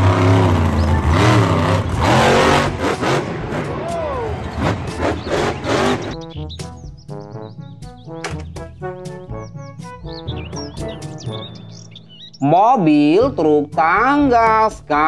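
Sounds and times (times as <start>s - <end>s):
truck engine revving: 0.0s - 6.6s
crowd noise: 3.3s - 5.7s.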